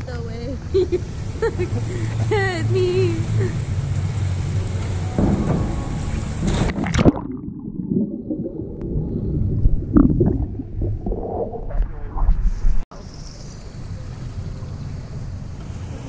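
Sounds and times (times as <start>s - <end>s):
water sound at surface: 0.9s - 12.8s
muffled underwater bubbling: 6.7s - 12.8s.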